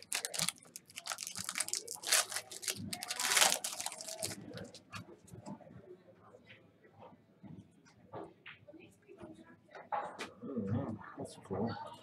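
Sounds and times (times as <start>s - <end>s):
foil wrapper crinkling and tearing: 0.0s - 4.8s.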